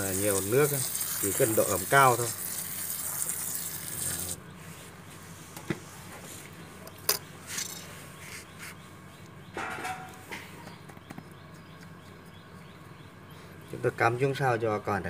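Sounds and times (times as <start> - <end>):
water spray hissing: 0.0 - 4.4.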